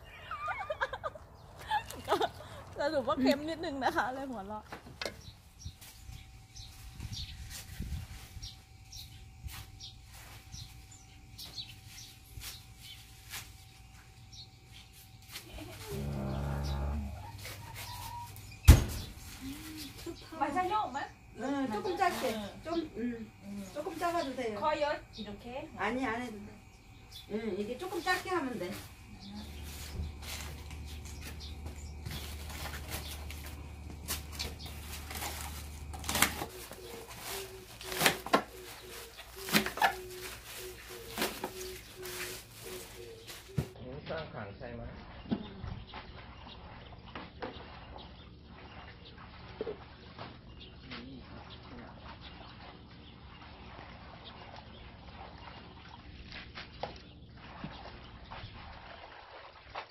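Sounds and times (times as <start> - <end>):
leaves rustling: 5.4 - 43.8
water running from hose into tub: 14.9 - 43.7, 44.8 - 59.9
splashes of rinsing greens: 17.2 - 43.8, 44.9 - 59.9.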